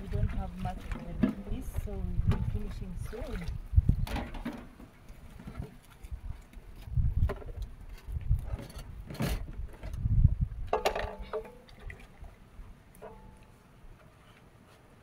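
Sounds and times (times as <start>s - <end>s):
dishes knocking and scraping: 10.7s - 11.6s.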